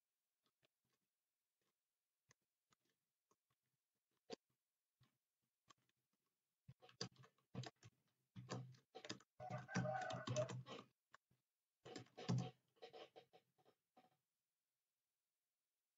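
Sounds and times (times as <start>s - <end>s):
keyboard typing clicks: 6.8s - 10.8s.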